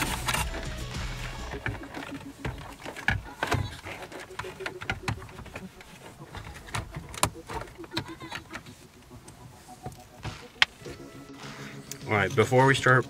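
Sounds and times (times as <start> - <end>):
plastic clicks and knocks: 1.5 - 8.7.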